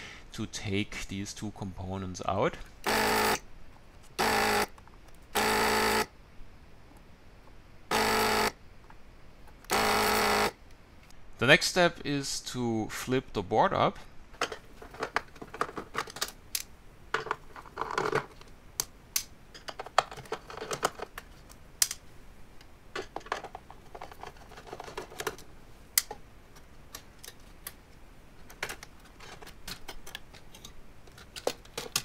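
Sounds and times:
circuit board scraping: 7.9s - 8.6s.

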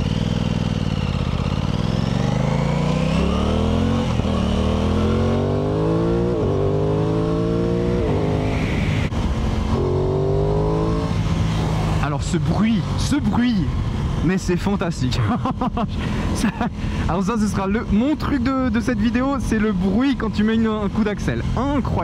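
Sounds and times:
motorcycle engine accelerating: 0.0s - 14.3s.

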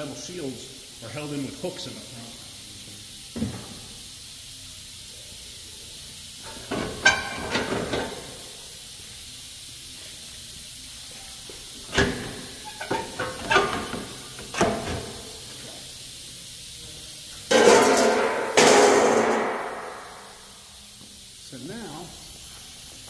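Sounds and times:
steady hiss: 0.0s - 23.0s
sheet metal knocks and scrapes: 17.5s - 20.0s.

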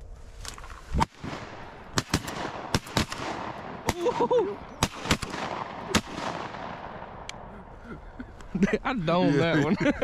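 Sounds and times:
shotguns firing: 1.0s - 7.4s.

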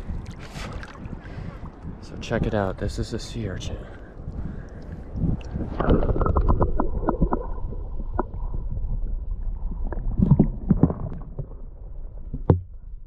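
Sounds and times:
underwater rumble of moving water: 0.0s - 13.0s
underwater clicks and knocks: 5.4s - 7.5s, 10.2s - 11.6s, 12.2s - 12.8s.

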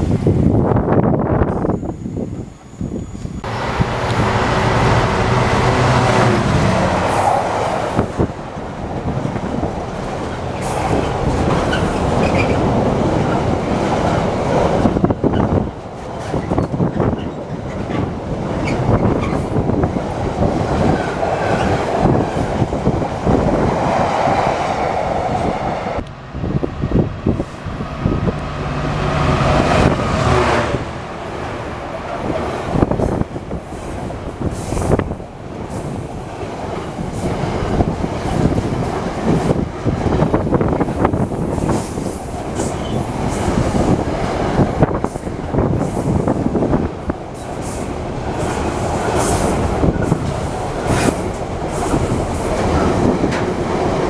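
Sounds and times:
diesel locomotive engine: 0.0s - 54.0s
freight wagons rumbling: 3.4s - 23.6s
wheels clattering over rail joints: 8.0s - 23.0s.

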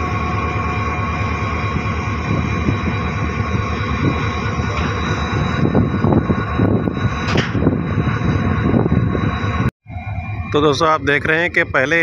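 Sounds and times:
diesel locomotive engine idling: 0.0s - 12.0s
high steady whining tones: 0.0s - 12.0s.

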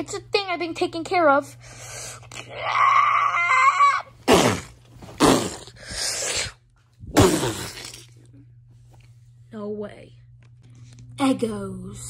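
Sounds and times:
person making harsh screeches: 2.4s - 6.6s.

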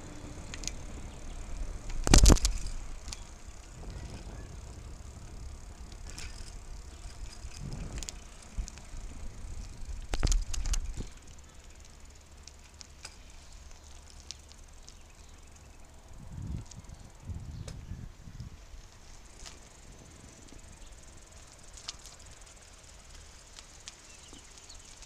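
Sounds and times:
wind and tyres on road: 0.0s - 25.0s
sharp clicks: 0.4s - 15.6s.

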